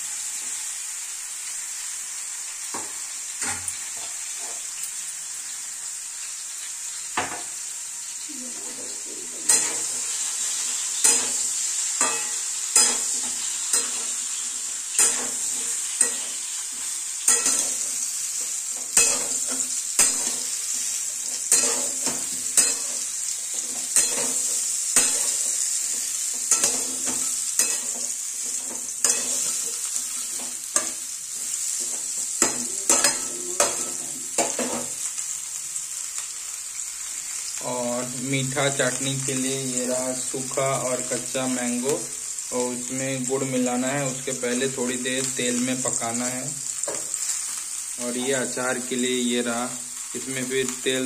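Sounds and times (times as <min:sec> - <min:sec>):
food sizzling in oil: 0:00.0 - 0:51.0
metal spatula scraping a pan: 0:08.5 - 0:35.1.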